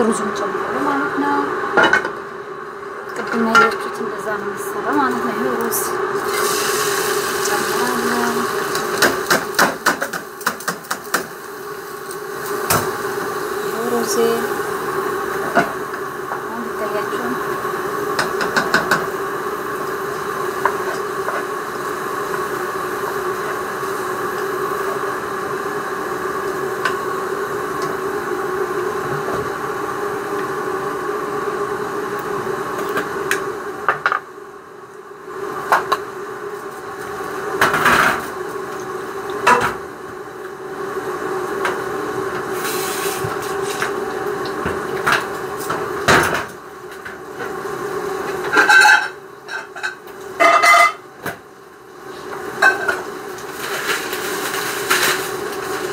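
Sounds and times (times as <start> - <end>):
kitchen hum: 0.0 - 55.9
pots and utensils clinking: 48.4 - 51.0.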